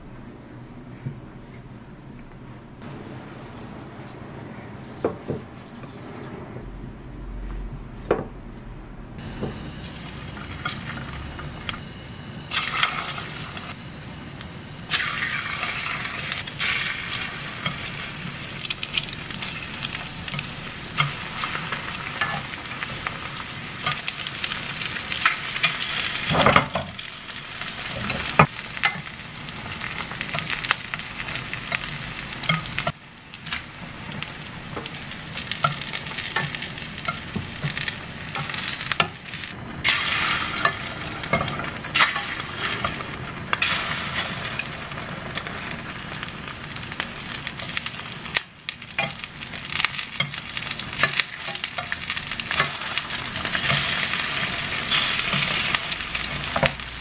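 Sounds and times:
loud knock: 7.5s - 8.5s
meat sizzling in oil: 12.4s - 57.0s.

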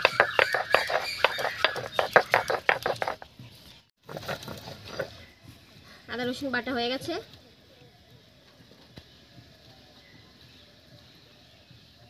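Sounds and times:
stone roller crunching on grinding stone: 0.0s - 3.3s, 4.0s - 5.2s
stone scraping: 0.0s - 3.3s.

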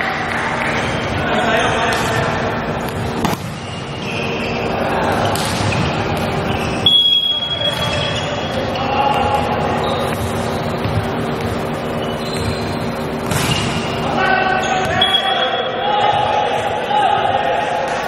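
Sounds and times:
echoing gym noise: 0.0s - 18.0s
referee's whistle: 6.5s - 9.0s, 14.6s - 15.8s.

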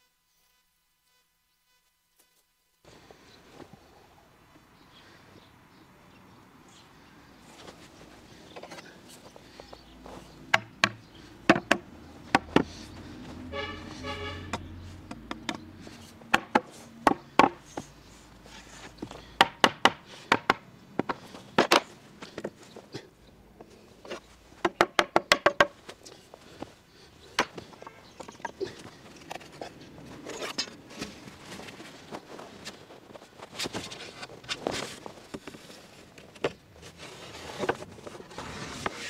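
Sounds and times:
hammer knocking wood: 10.5s - 12.7s, 16.3s - 17.6s, 19.4s - 20.6s, 24.6s - 25.7s.

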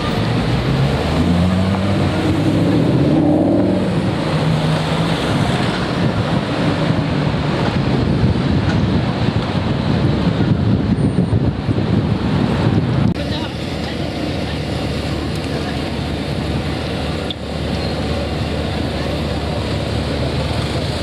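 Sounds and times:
car engine accelerating: 0.0s - 8.6s
city traffic noise: 0.0s - 21.0s
wind on microphone: 1.6s - 13.4s.

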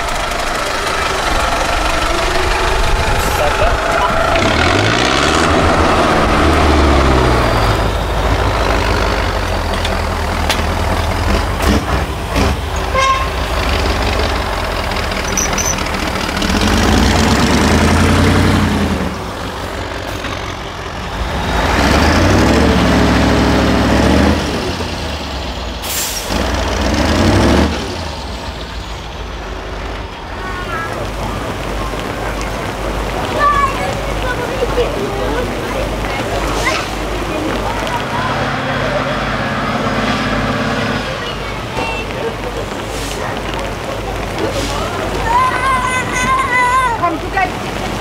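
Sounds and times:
diesel truck engines revving: 0.0s - 48.0s.

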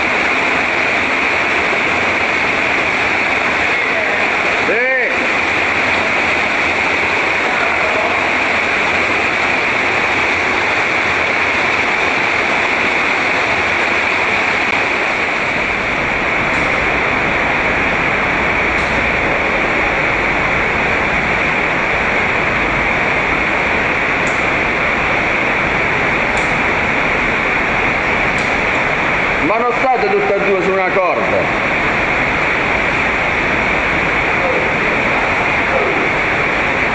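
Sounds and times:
deep rumble: 0.0s - 29.5s
water rushing in cave: 0.0s - 36.9s.

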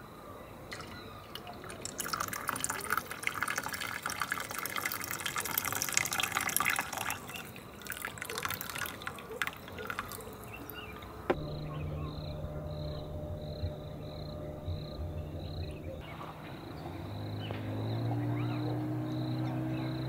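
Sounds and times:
coffee pouring into a metal mug: 0.7s - 11.0s.

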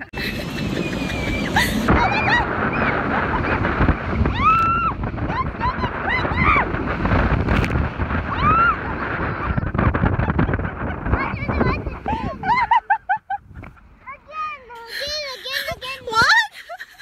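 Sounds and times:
woman squealing and laughing: 0.0s - 3.7s, 4.3s - 6.7s, 12.1s - 13.4s, 14.9s - 17.0s
wind rushing over microphone: 0.0s - 17.0s.

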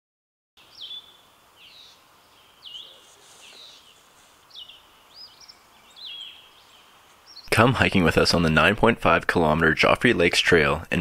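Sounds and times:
bird calling: 0.6s - 7.8s
faint outdoor hiss: 0.6s - 11.0s.

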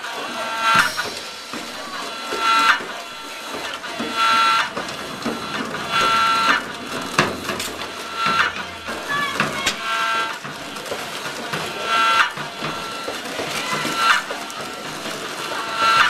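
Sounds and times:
small motor whirring in bursts: 0.0s - 16.0s
knocks: 0.7s - 16.0s.

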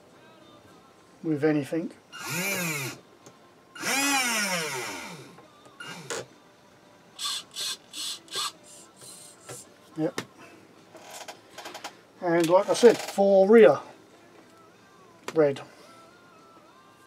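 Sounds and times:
small electric motor whining: 2.2s - 3.0s, 3.8s - 6.3s.

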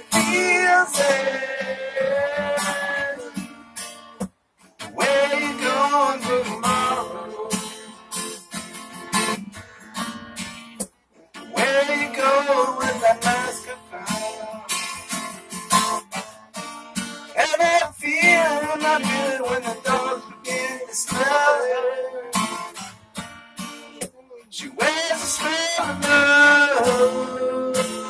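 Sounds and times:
man singing: 0.0s - 3.4s, 4.8s - 8.0s, 11.4s - 15.0s, 17.3s - 22.7s, 24.0s - 28.0s
acoustic guitar strumming: 0.0s - 28.0s.

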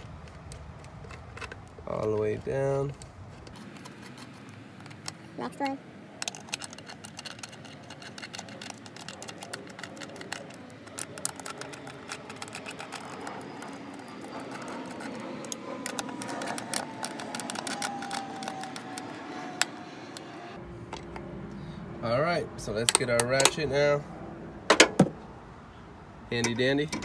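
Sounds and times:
socket wrench clicking and rattling: 6.2s - 19.7s.

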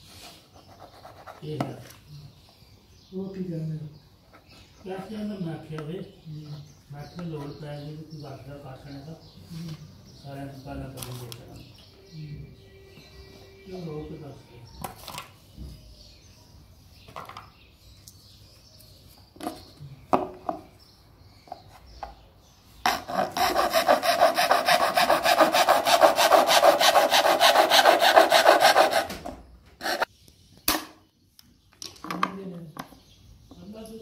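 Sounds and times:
hacksaw sawing through plastic: 22.9s - 30.1s.

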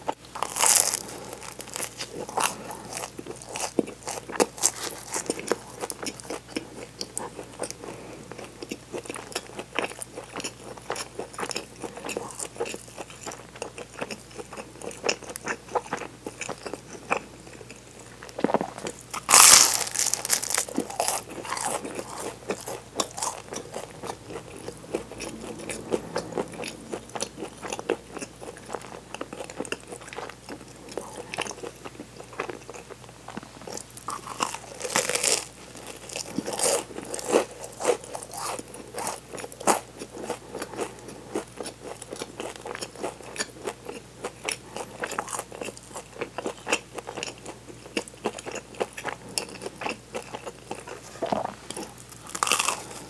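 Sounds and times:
crunchy bread chewing: 0.1s - 53.0s.

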